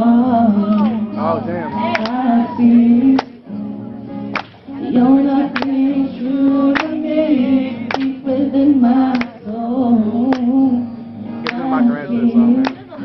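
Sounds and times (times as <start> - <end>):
acoustic guitar: 0.0 - 13.0
man singing: 4.8 - 13.0.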